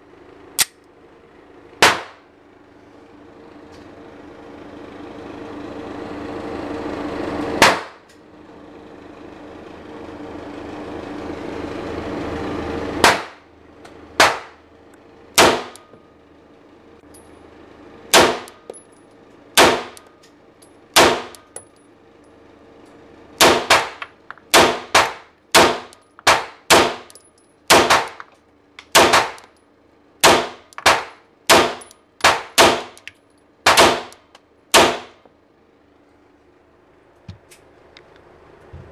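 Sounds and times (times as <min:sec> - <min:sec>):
steady hum: 0:00.0 - 0:38.9
pistol shots ringing: 0:23.4 - 0:28.2, 0:28.9 - 0:29.5, 0:33.7 - 0:34.2.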